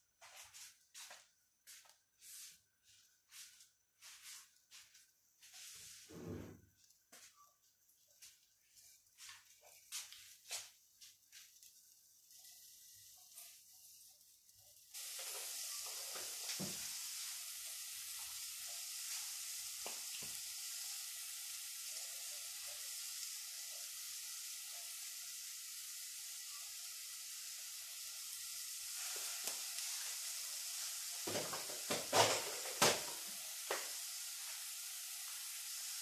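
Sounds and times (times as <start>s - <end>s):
butter sizzling in a pot: 6.8s - 36.0s.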